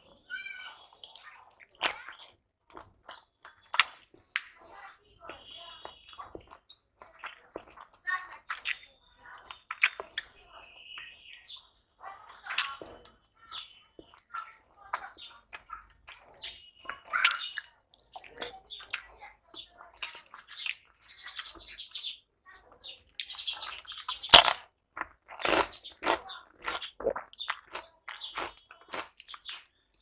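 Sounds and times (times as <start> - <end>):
wet chewing and lip smacks: 0.8 - 4.6, 5.3 - 10.3, 14.0 - 19.1, 23.1 - 29.8
loud crunch of crisp bite: 23.2 - 29.7.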